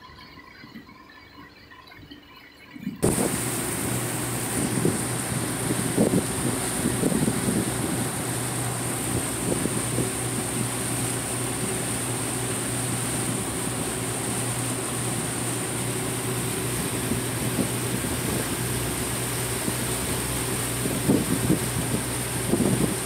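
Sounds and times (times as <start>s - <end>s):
water noise: 0.0s - 23.0s
wind noise: 2.8s - 12.2s, 15.6s - 23.0s
boat engines droning: 3.0s - 23.0s.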